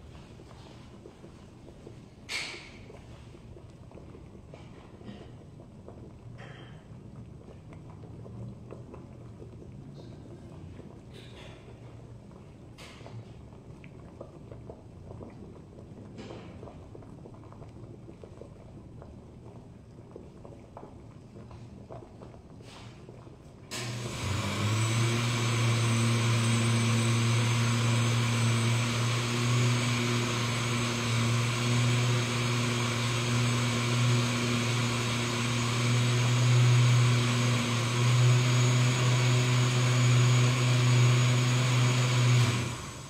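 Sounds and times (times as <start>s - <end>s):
motor humming and hissing: 23.7s - 43.0s.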